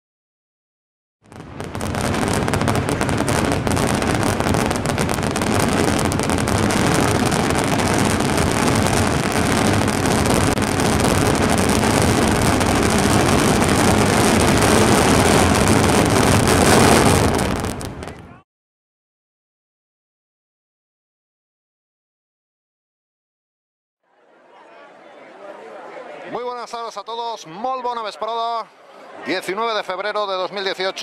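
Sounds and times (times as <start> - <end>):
firecracker barrage: 1.2 - 18.4.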